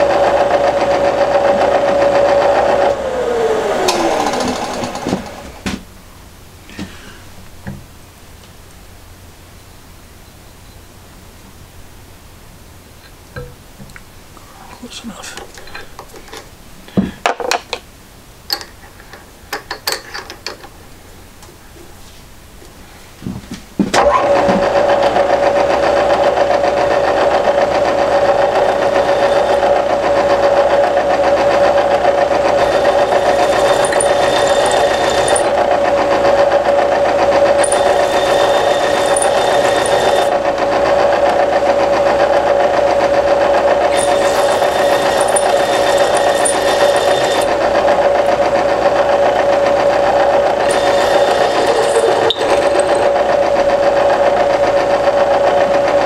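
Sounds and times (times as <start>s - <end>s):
motor running with whine: 0.0s - 5.8s, 24.1s - 56.0s.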